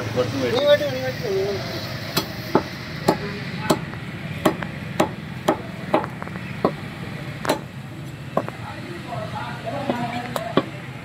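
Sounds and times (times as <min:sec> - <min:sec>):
cleaver chopping on wooden block: 0:02.2 - 0:06.8, 0:07.5 - 0:07.7.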